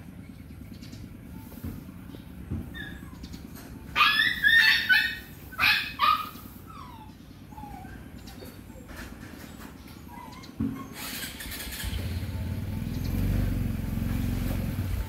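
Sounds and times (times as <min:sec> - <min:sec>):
animal calls: 0:02.6 - 0:12.3.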